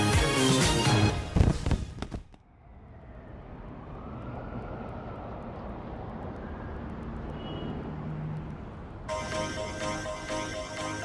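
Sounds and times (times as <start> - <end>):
vehicle passing on road: 2.4 - 9.5.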